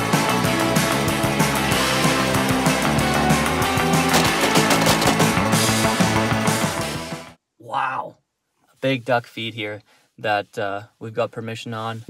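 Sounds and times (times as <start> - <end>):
loud rock music: 0.0 - 7.4
driving drum beat: 3.7 - 5.9.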